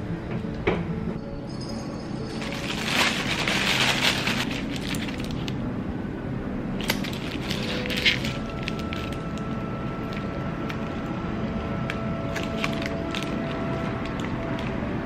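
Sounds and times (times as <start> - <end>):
aluminium foil crinkling: 2.3 - 5.6, 6.8 - 11.1, 12.2 - 14.8.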